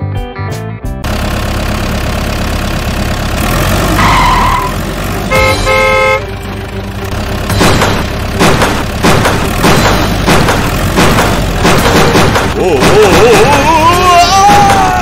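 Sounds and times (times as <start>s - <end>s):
vehicle engine rumbling: 1.0s - 15.0s
car horn honking: 5.3s - 6.4s.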